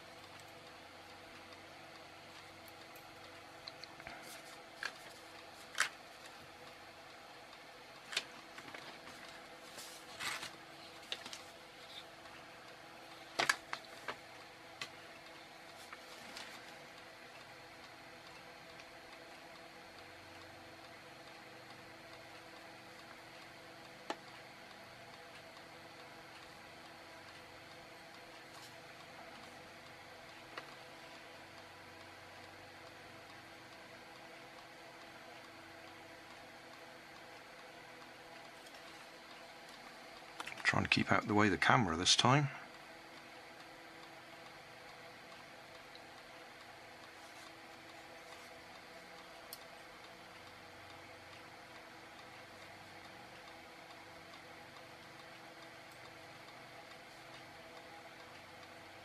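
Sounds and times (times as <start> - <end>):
faint steady hum: 0.0 - 59.0
paper sheet rustling: 8.2 - 11.6.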